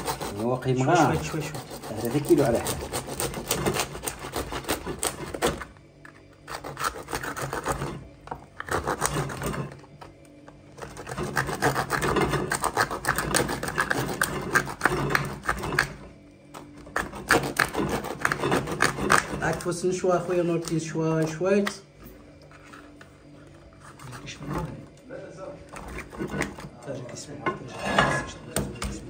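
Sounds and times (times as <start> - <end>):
knife sawing through shell: 0.0 - 10.0, 10.7 - 20.8, 23.7 - 24.8, 25.7 - 26.8.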